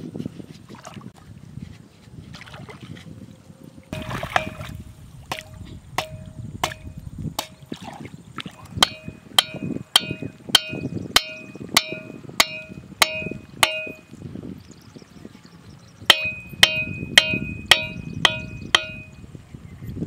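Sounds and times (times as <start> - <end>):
water sloshing: 0.4 - 14.2
hammer knocking wooden stake: 4.0 - 7.7, 8.8 - 14.0, 16.1 - 19.2.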